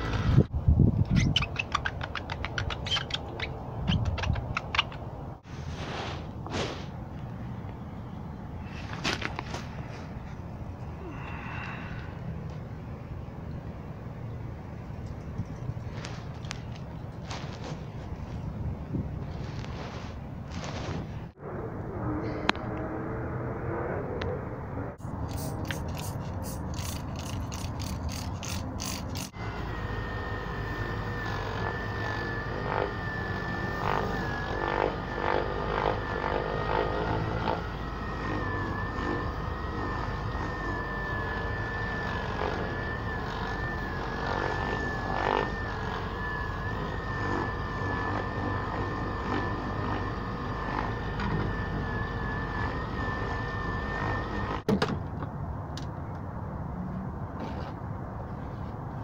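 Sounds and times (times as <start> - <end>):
electric buffer whining: 0.0 - 0.5, 21.4 - 54.7
spray bottle squirts: 25.2 - 29.3.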